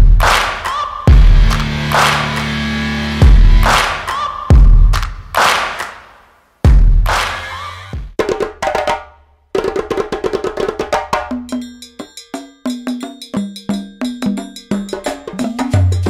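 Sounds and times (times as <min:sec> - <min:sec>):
percussion rhythm: 0:00.0 - 0:16.0
low bass line: 0:01.1 - 0:03.9.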